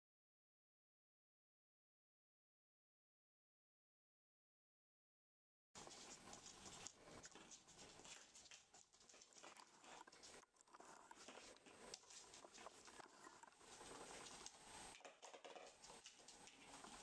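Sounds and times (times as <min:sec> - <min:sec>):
puppy paws clicking on wooden floor: 0:05.8 - 0:17.0.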